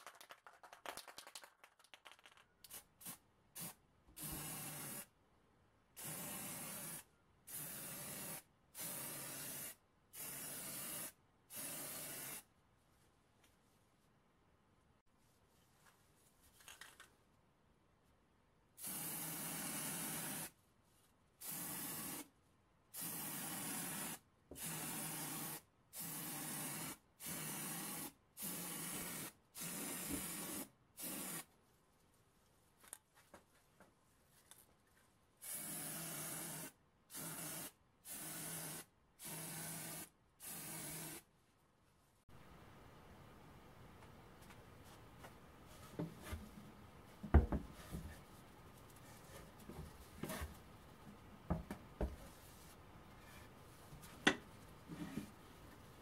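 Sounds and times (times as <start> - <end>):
aerosol spray can spraying: 2.7 - 5.1, 6.0 - 12.5, 18.8 - 20.6, 21.4 - 22.3, 23.0 - 31.5, 35.4 - 41.3.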